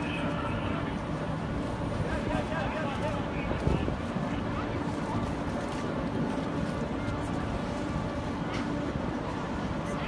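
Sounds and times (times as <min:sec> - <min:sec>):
traffic rumble: 0:00.0 - 0:10.0.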